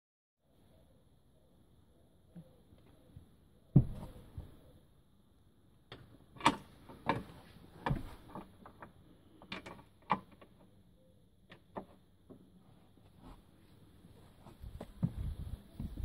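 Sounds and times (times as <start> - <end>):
metal seat base clicking and clunking: 5.9 - 10.7.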